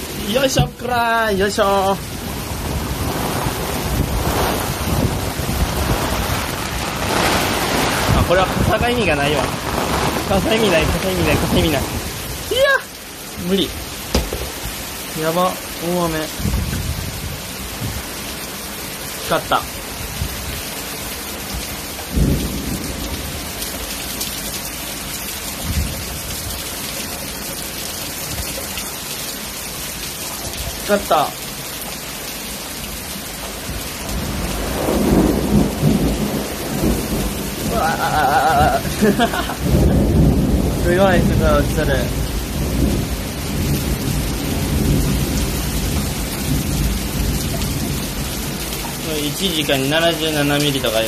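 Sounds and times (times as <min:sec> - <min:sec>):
heavy rain pouring: 0:00.0 - 0:51.0
thunder: 0:02.2 - 0:12.1, 0:14.1 - 0:14.8, 0:16.4 - 0:18.0, 0:22.1 - 0:23.6, 0:34.1 - 0:48.6.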